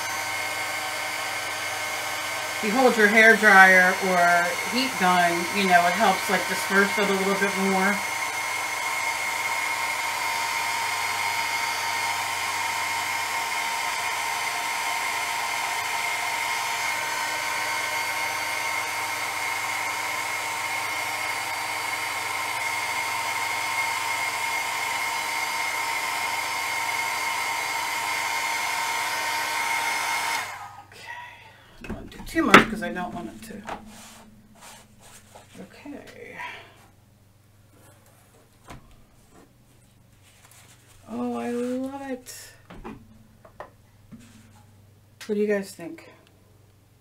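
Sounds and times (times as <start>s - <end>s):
heat tool blowing air: 0.0s - 30.9s, 31.8s - 35.6s.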